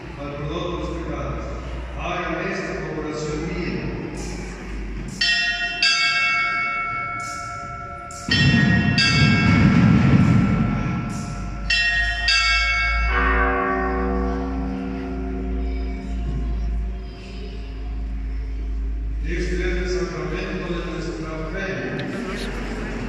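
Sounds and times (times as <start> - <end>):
bells ringing: 0.0 - 21.8
low rumble: 7.7 - 12.3, 14.1 - 23.0.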